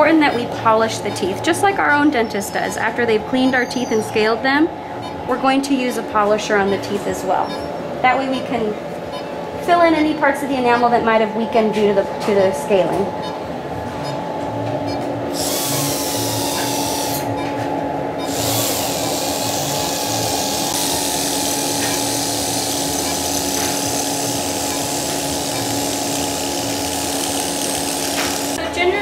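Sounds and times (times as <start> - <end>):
dental polisher whine: 15.3 - 17.3, 18.2 - 28.6.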